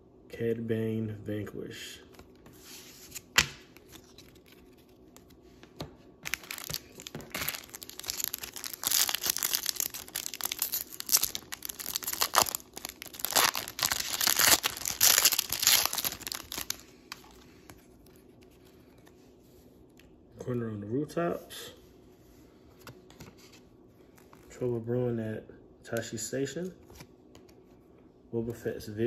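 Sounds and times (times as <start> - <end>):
foil wrapper tearing and crinkling: 6.2 - 17.3.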